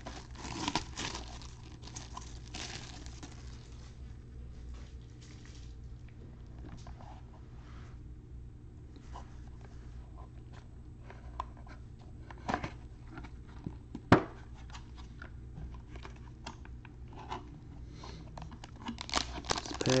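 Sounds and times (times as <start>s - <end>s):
cardboard clicks and rustles: 0.0s - 3.8s
low steady hum: 0.0s - 20.0s.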